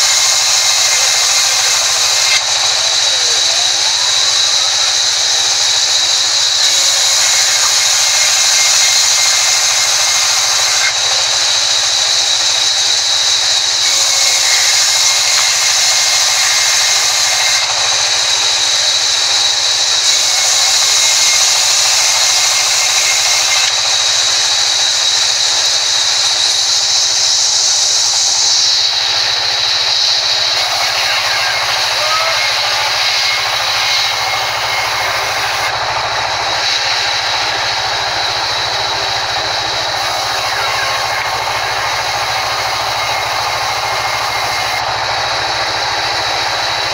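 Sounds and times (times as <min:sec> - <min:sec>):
band saw whine: 0:00.0 - 0:46.9
hiss: 0:00.0 - 0:46.9.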